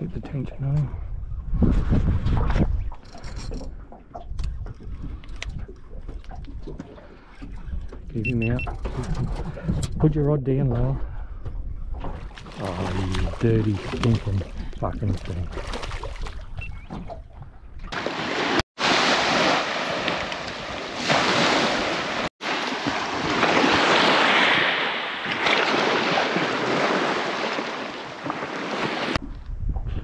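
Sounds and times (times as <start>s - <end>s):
wind: 0.0s - 30.0s
surf on a beach: 18.0s - 29.2s.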